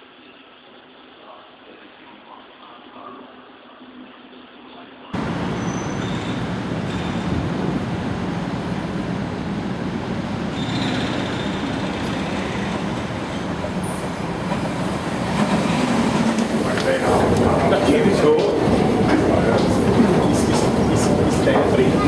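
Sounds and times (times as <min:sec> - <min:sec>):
high wheel squeals: 0:05.2 - 0:07.6, 0:10.4 - 0:14.2
train rumbling on track: 0:05.2 - 0:22.0.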